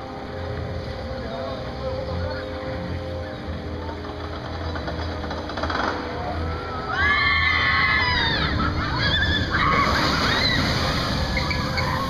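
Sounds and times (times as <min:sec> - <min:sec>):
roller coaster riders screaming: 0:05.6 - 0:12.0.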